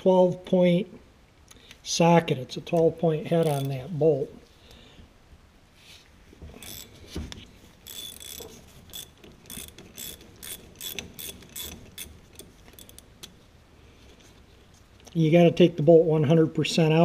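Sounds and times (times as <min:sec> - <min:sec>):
socket ratchet clicking: 0:03.4 - 0:03.8, 0:06.6 - 0:07.0, 0:07.8 - 0:13.4.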